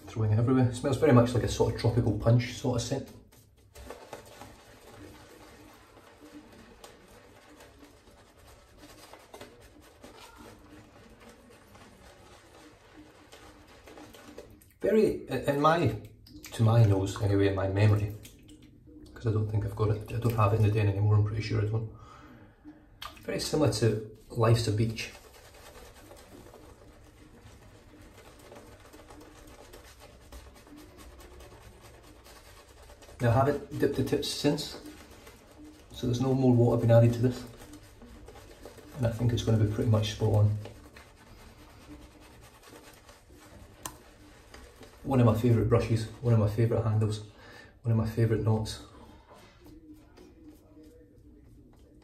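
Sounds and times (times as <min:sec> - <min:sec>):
shaving brush swishing through foam: 0:00.7 - 0:18.3, 0:23.3 - 0:47.3.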